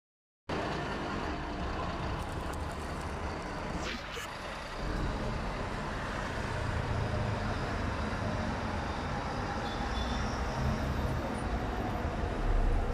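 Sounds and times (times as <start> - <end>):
heavy vehicle engine rumble: 0.5 - 8.8
vehicle traffic noise: 0.5 - 12.9.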